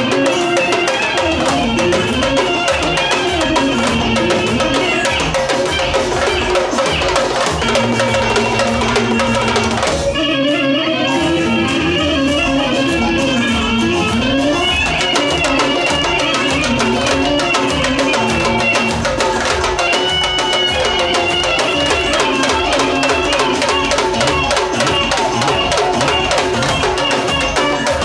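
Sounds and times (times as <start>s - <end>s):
fast drumming: 0.0s - 10.2s, 12.3s - 28.0s
clarinet melody: 0.0s - 28.0s.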